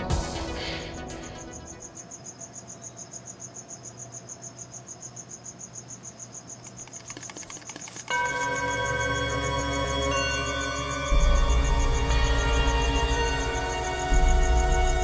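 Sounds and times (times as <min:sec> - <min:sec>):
eerie music: 0:00.0 - 0:02.0, 0:08.1 - 0:15.0
cricket chirping: 0:00.2 - 0:15.0.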